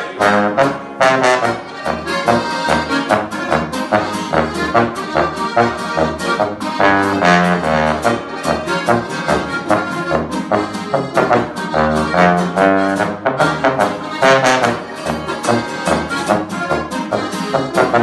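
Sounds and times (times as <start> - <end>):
acoustic guitar strumming: 0.0 - 18.0
brass horn bass line: 0.0 - 18.0
button accordion: 0.0 - 18.0.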